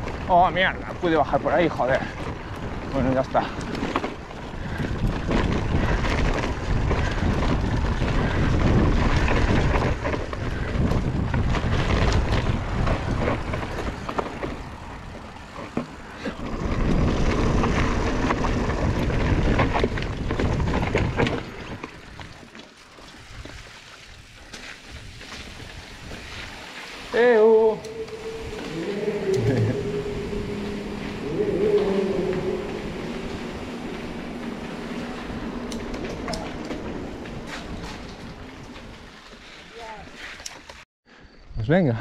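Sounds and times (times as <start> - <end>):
mountain bike rattling over dirt: 0.0 - 40.8
wind on camera microphone: 4.2 - 15.2, 16.4 - 21.8.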